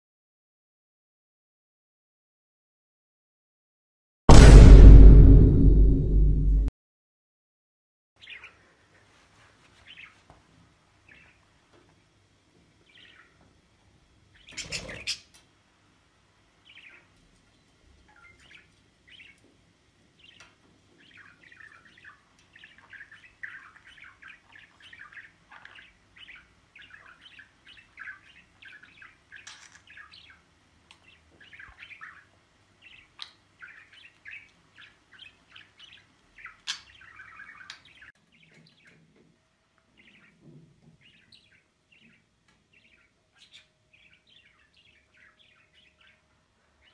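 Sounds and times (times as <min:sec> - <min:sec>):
budgerigar chirping and warbling: 0:14.4 - 0:15.4, 0:21.0 - 0:30.4, 0:31.0 - 0:39.0, 0:42.8 - 0:46.2.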